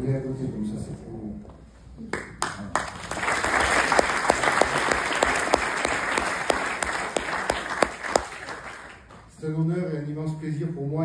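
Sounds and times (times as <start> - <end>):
loud single claps: 2.2 - 9.2
audience applauding: 2.4 - 9.3.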